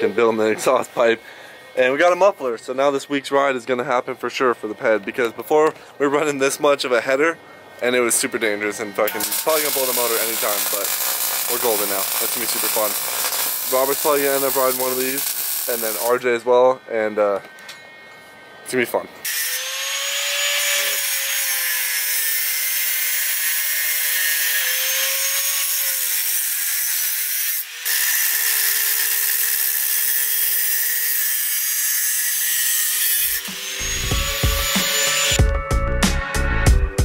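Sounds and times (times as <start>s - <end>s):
angle grinder cutting metal: 8.4s - 35.4s
music with strong beat: 33.5s - 37.0s.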